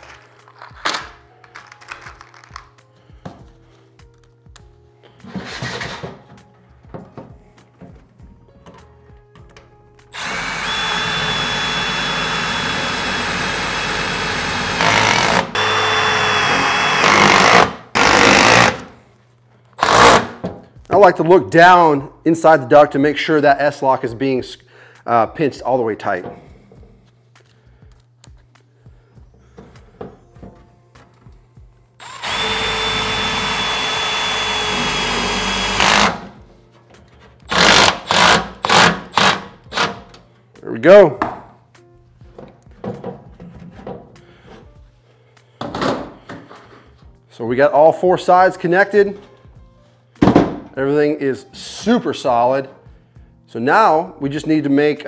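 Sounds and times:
impact driver driving screws: 10.2 - 18.9, 19.8 - 20.4, 32.0 - 36.3, 37.5 - 40.0.

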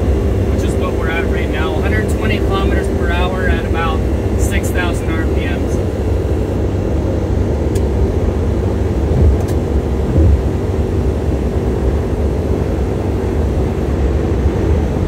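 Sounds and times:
car engine droning: 0.0 - 15.0
road noise: 0.0 - 15.0
wind noise: 8.8 - 11.7
low thumps: 9.0 - 10.8.

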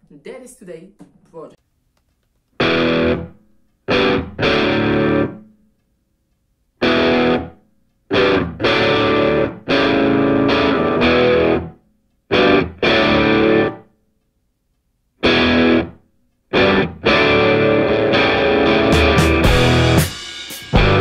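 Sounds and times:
distorted electric guitar chords: 2.6 - 5.5, 6.8 - 13.8, 15.2 - 21.0.

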